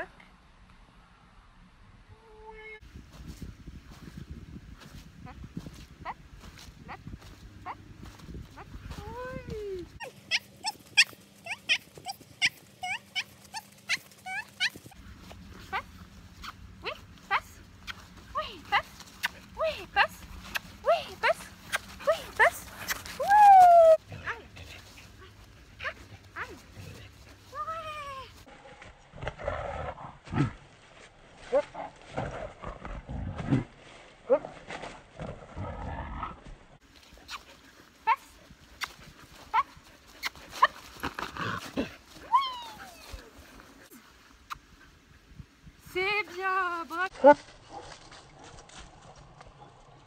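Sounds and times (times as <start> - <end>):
dog yelping: 10.0 - 15.0.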